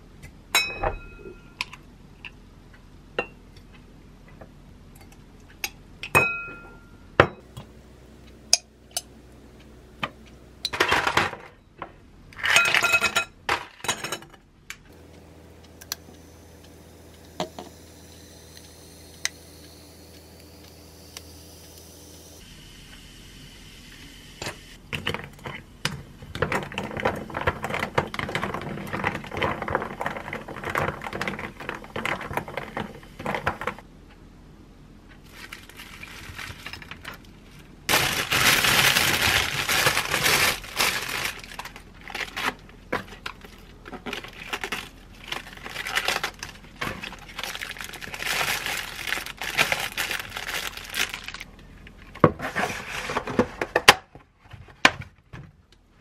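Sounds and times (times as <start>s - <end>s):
plastic crinkling: 35.3s - 51.5s
lettuce leaves rustling: 37.9s - 42.6s, 44.1s - 51.5s.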